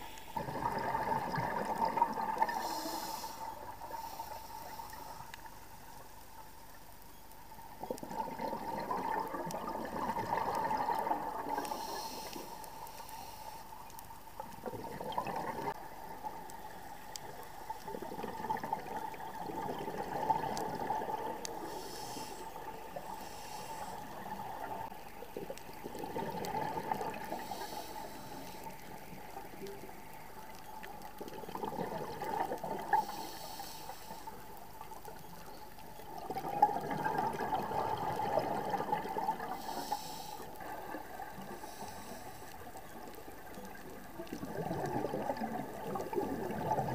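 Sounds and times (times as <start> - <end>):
faint steady tone: 0.0 - 46.9
bubbling exhalations underwater: 0.4 - 2.6, 7.8 - 11.7, 14.6 - 15.8, 25.8 - 27.3, 31.3 - 33.0, 36.2 - 39.6, 44.3 - 46.9
hissing regulator inhalations: 2.5 - 5.5, 11.6 - 13.8, 21.6 - 24.2, 27.2 - 28.9, 33.0 - 34.4, 39.5 - 40.7, 41.4 - 42.6.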